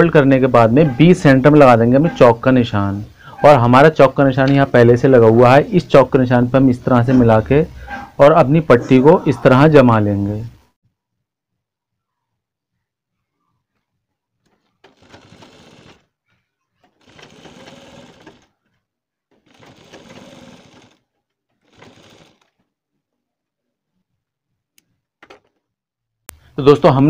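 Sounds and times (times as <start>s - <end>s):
sewing machine running: 14.8s - 16.1s, 16.9s - 18.6s, 19.4s - 22.6s.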